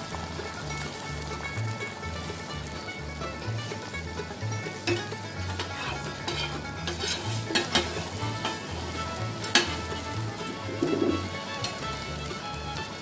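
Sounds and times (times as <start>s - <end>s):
egg sizzling on a griddle: 0.0s - 13.0s
steel spatulas scraping metal: 4.9s - 10.1s.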